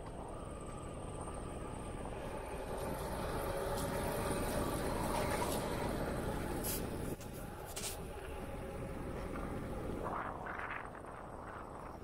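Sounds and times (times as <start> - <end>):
wind rushing over microphone: 8.0 - 12.0.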